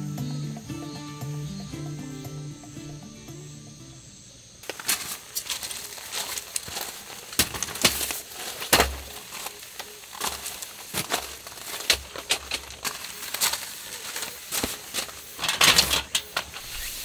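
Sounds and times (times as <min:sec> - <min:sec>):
music: 0:00.0 - 0:04.6
camping chair clacking and rustling: 0:04.6 - 0:17.0.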